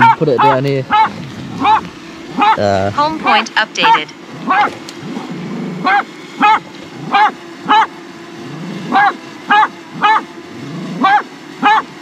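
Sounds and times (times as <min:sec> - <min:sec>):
dog barking: 0:00.0 - 0:02.7, 0:03.9 - 0:04.8, 0:05.8 - 0:07.9, 0:08.9 - 0:10.3, 0:11.0 - 0:12.0
drone propellers humming: 0:00.0 - 0:12.0.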